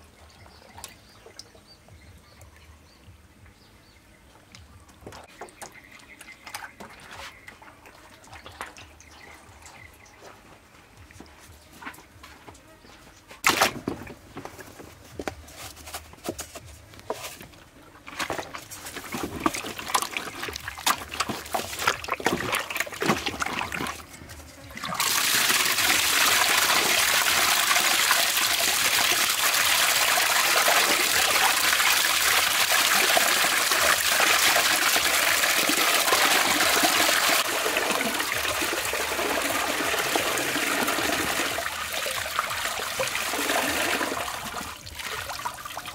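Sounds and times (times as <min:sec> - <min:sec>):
hands sloshing meat in water: 0:18.1 - 0:24.1.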